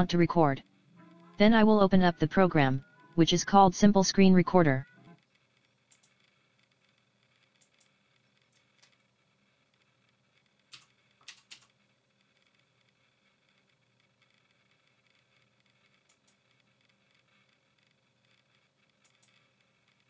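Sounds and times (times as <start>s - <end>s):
computer keyboard clicks: 10.7s - 11.7s.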